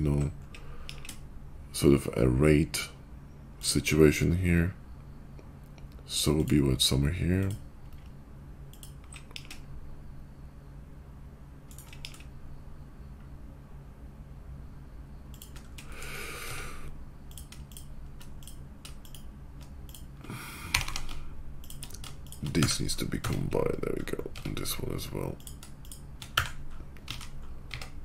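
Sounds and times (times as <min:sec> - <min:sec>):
steady low hum: 0:00.0 - 0:28.0
keyboard and mouse clicks: 0:00.2 - 0:01.2, 0:08.7 - 0:09.7, 0:11.7 - 0:12.3, 0:15.3 - 0:16.0, 0:17.3 - 0:20.1, 0:20.7 - 0:28.0
short breathy hiss: 0:15.8 - 0:16.9.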